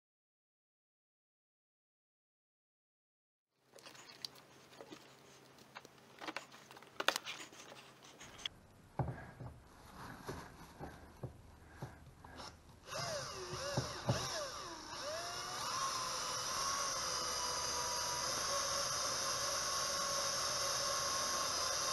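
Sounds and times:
cordless drill motor whine: 0:12.3 - 0:21.9.

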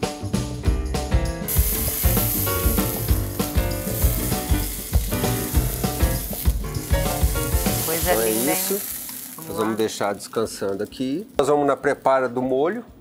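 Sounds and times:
background music with a beat: 0:00.0 - 0:08.0
steak sizzling in a frying pan: 0:01.5 - 0:11.2.

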